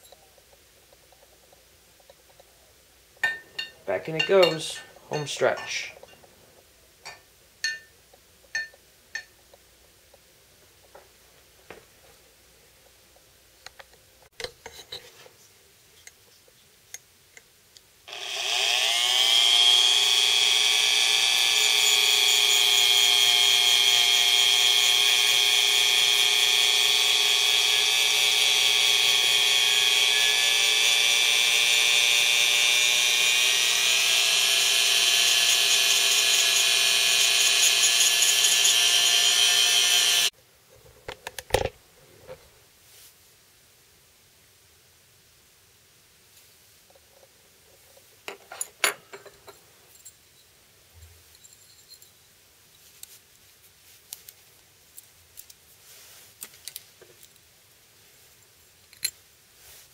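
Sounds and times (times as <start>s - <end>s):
rotary tool whining: 18.1s - 40.3s.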